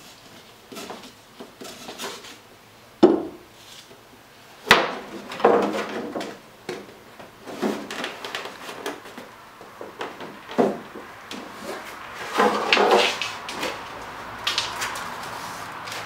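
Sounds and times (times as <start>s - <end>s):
wooden knocks and thumps: 3.0s - 3.4s, 4.7s - 11.6s, 12.2s - 13.8s.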